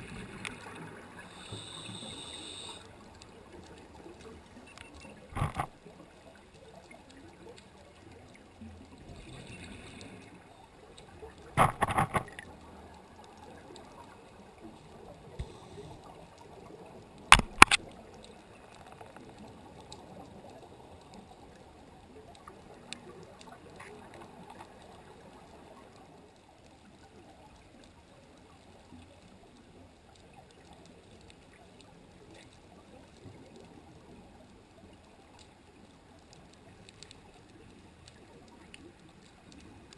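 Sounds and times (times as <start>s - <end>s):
underwater rushing hiss: 0.0s - 3.0s
sharp clicks: 17.3s - 18.0s.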